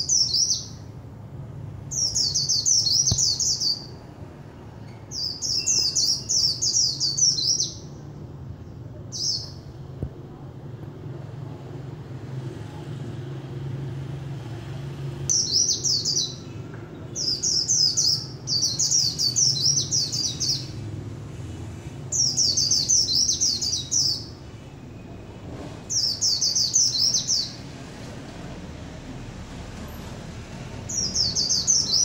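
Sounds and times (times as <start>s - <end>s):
bird twittering: 1.9s - 4.0s, 5.1s - 7.9s.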